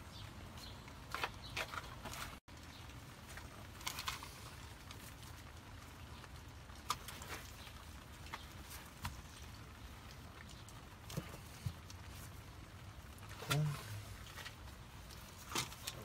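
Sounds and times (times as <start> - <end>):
clicks and rubbing of wires: 3.2 - 5.6, 6.7 - 16.0.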